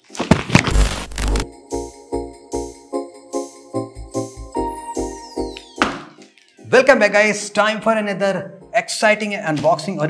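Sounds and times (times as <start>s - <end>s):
intro music with pulsing chords: 1.1s - 5.8s.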